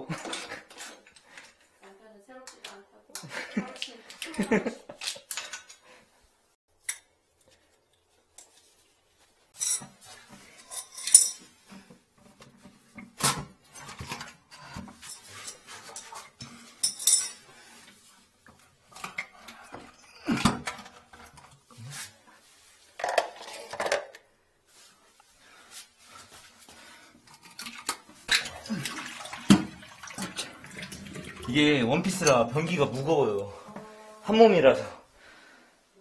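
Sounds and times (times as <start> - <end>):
porcelain and tools clattering on tiles: 0.0 - 6.0, 9.5 - 21.8, 23.0 - 24.3, 26.9 - 33.9.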